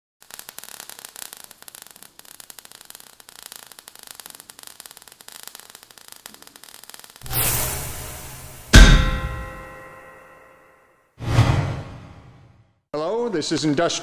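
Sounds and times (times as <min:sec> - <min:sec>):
sparks crackling and hissing: 0:00.2 - 0:10.0.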